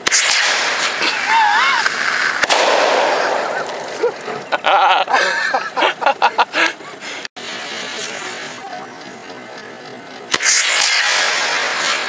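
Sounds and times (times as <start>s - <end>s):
fireworks bangs: 0.0s - 5.0s, 10.3s - 12.0s
steady rushing hiss: 0.0s - 12.0s.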